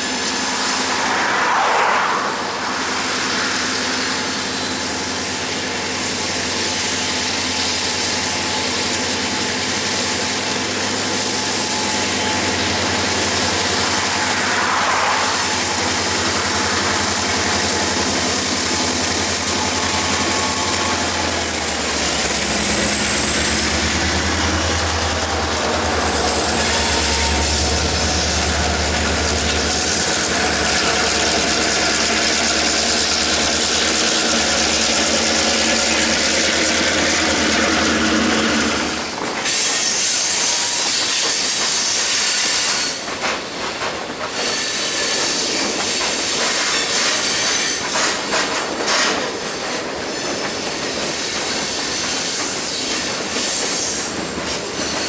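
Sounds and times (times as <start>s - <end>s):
steady high whine: 0.0s - 6.2s, 10.6s - 39.4s
locomotive engines rumbling: 0.0s - 40.9s.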